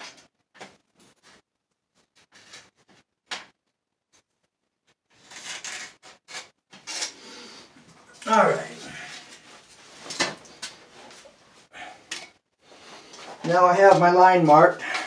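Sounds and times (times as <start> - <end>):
level scraping along wood: 5.2 - 9.8.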